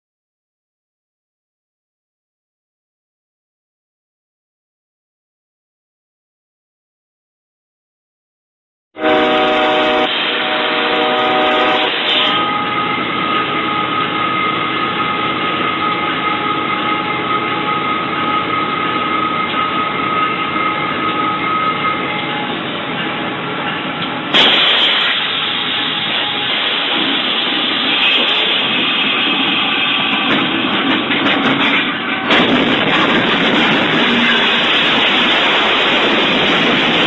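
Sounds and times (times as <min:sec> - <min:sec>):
locomotive horn blowing: 0:09.0 - 0:14.0, 0:28.9 - 0:30.3
train running noise: 0:09.0 - 0:37.0.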